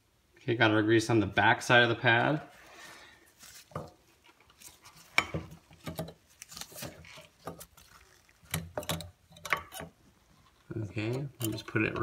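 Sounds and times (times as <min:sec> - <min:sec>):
metal clicks and scrapes: 0:05.8 - 0:12.0.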